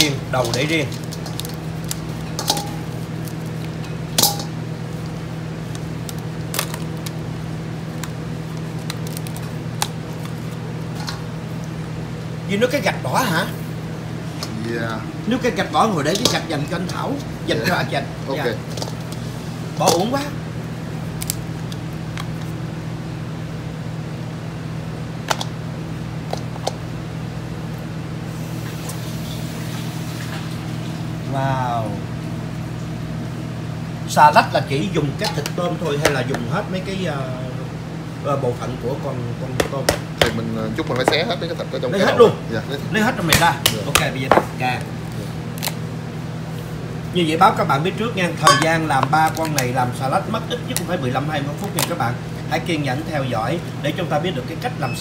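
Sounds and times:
steady low hum: 0:00.0 - 0:55.0
lobster shells clicking: 0:05.7 - 0:11.8, 0:21.1 - 0:22.4.

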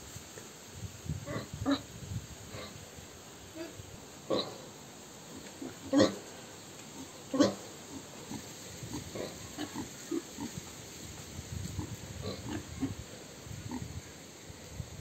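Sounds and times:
pig grunting: 0:03.6 - 0:04.6, 0:05.6 - 0:06.2, 0:07.0 - 0:10.6, 0:11.8 - 0:13.0.

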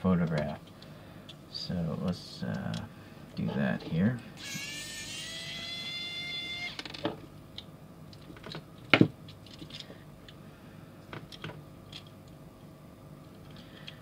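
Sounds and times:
electric screwdriver whining: 0:04.4 - 0:06.9.

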